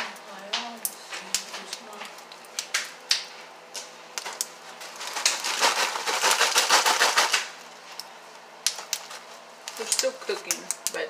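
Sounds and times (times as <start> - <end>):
pork rinds rustling inside bag: 4.2 - 10.6
paper bag crinkling: 4.7 - 7.5.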